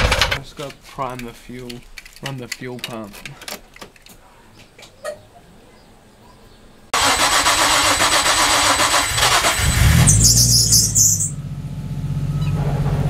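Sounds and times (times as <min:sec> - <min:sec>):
car engine cranking on starter: 0:07.0 - 0:11.3
car engine idling: 0:07.0 - 0:13.0.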